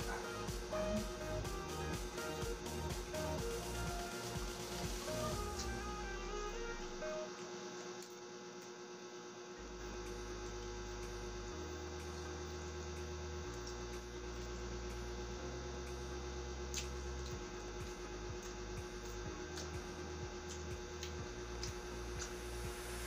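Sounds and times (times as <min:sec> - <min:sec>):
sustained low notes: 0:00.0 - 0:07.2, 0:13.6 - 0:23.0
steady hum: 0:00.0 - 0:23.0.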